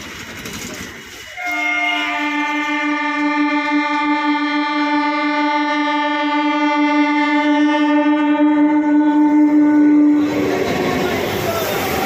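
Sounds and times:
train horn blast: 1.3 - 10.6.

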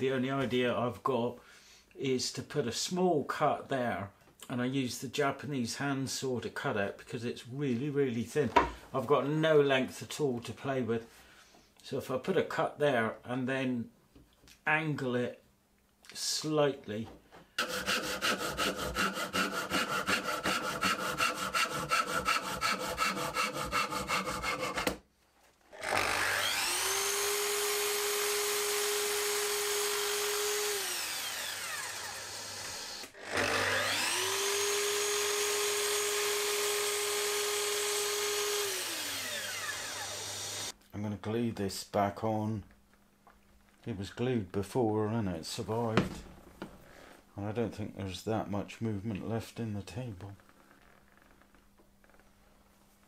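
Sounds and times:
pull saw cutting wood: 17.6 - 25.0, 25.7 - 40.8
mitre saw motor whining: 25.7 - 40.7.

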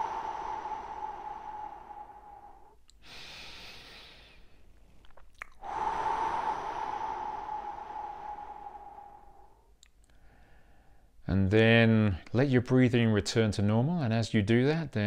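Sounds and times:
man breathing deeply: 0.0 - 4.7, 5.6 - 11.2
mouth clicks: 5.0 - 5.7, 9.7 - 10.2.

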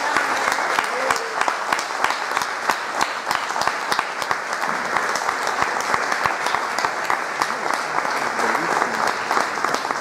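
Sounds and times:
audience applause: 0.0 - 10.0.

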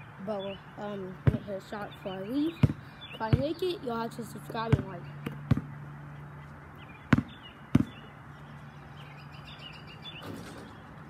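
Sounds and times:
steady low hum: 0.0 - 11.0
basketball bouncing on concrete: 1.1 - 5.8, 7.1 - 8.1.

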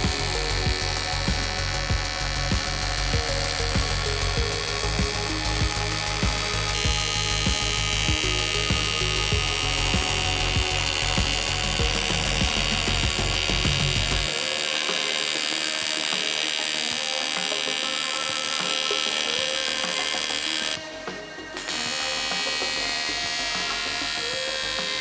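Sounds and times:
welding arc buzzing: 0.0 - 25.0.

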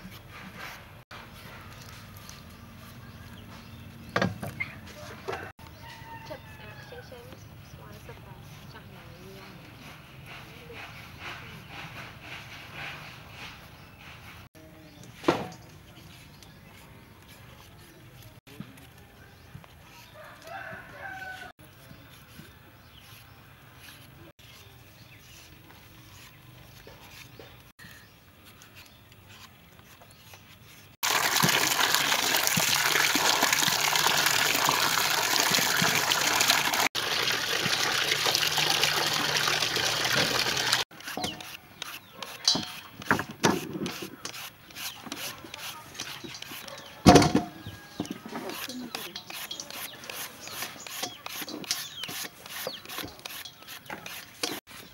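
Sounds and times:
rooster crowing: 5.0 - 7.2, 20.1 - 21.6
peeler scraping mango: 19.8 - 31.0, 40.1 - 54.9.

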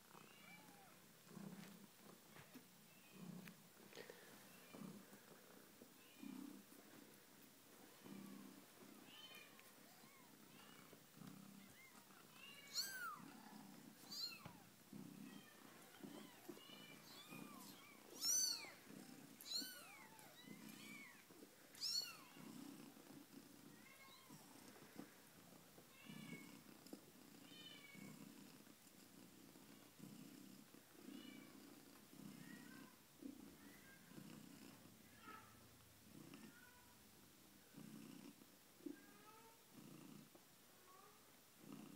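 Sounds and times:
cat purring: 0.0 - 35.1, 37.6 - 40.4, 41.6 - 41.9
kittens mewing: 11.6 - 22.4.

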